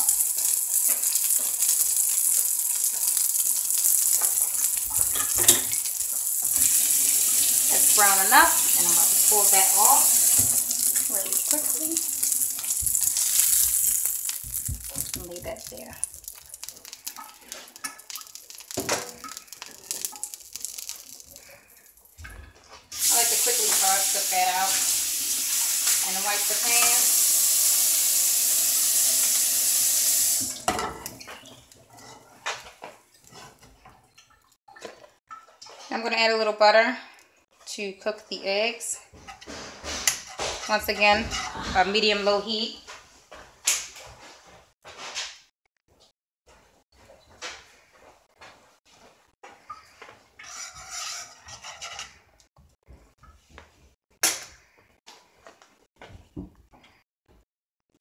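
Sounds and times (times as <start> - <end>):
utensil scraping a dish: 39.2 - 42.1, 50.4 - 52.3.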